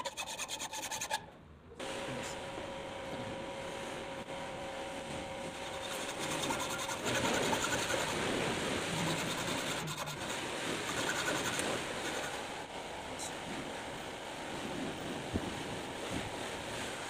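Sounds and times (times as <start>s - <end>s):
hacksaw rasping on metal: 0.0s - 1.2s, 5.6s - 8.3s, 8.9s - 12.4s.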